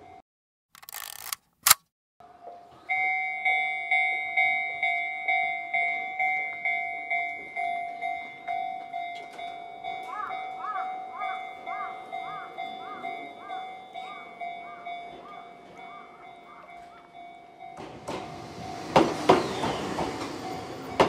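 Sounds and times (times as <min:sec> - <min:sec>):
level crossing alarm two-tone dings: 0:02.9 - 0:18.0.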